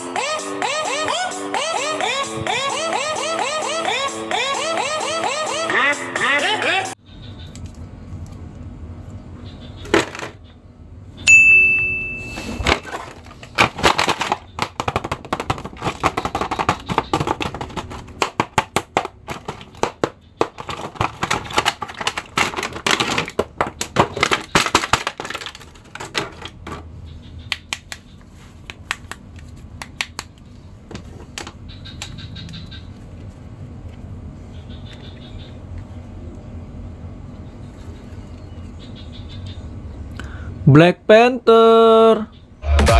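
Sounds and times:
short high beep: 11.3s - 12.7s
plastic packaging crinkling: 12.7s - 26.6s.

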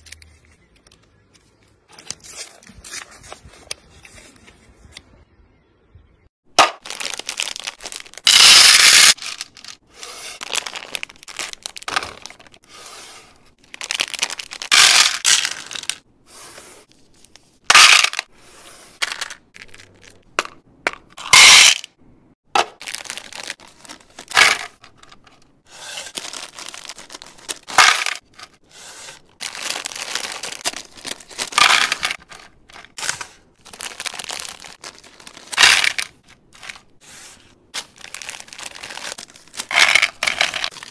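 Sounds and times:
candies pouring into plastic tray: 6.8s - 12.6s, 13.8s - 16.0s, 29.4s - 36.8s, 37.8s - 40.9s
plastic bags crinkling and tearing: 6.8s - 12.6s, 13.6s - 16.0s, 22.7s - 24.8s, 26.0s - 28.5s, 29.3s - 37.0s, 37.8s - 40.9s.

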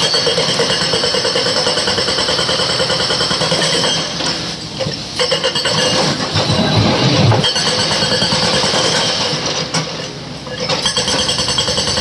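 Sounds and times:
hydraulic breaker hammering rock: 0.0s - 4.5s, 5.2s - 12.0s
diesel engines running: 3.4s - 12.0s.

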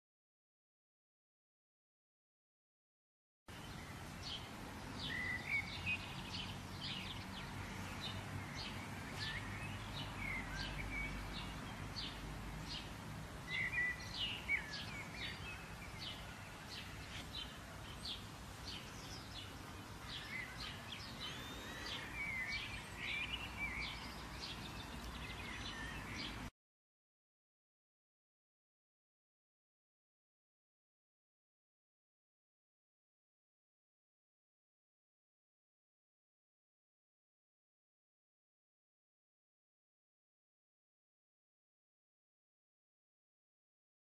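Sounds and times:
birds chirping and singing: 3.7s - 12.9s, 13.5s - 26.4s.

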